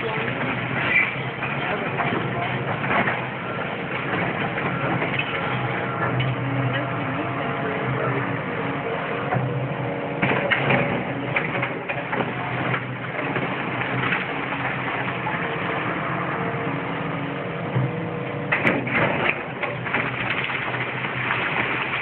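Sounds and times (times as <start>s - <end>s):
crunching and clattering rubble: 0.0s - 7.0s, 10.2s - 16.2s, 18.4s - 22.0s
excavator diesel engine running: 0.0s - 22.0s.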